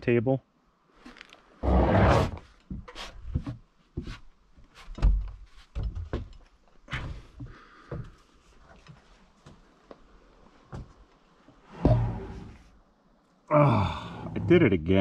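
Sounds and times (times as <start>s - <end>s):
wooden knocks and thumps: 4.8s - 8.2s.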